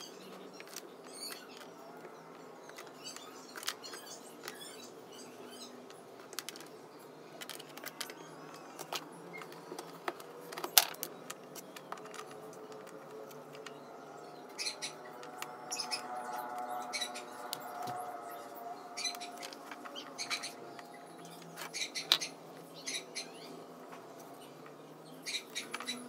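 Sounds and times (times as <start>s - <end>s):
twigs clicking on wooden table: 7.4s - 13.8s.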